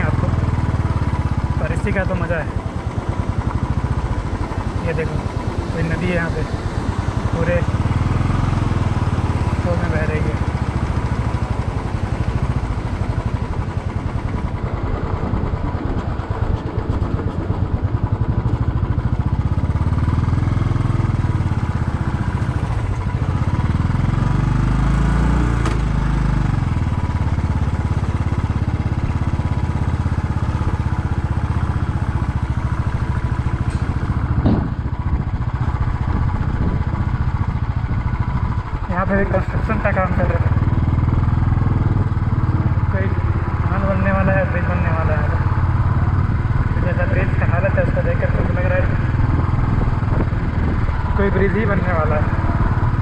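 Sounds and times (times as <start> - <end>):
motorcycle engine running: 0.0 - 53.0
low rumble: 28.3 - 53.0
short sharp knock: 33.7 - 34.8.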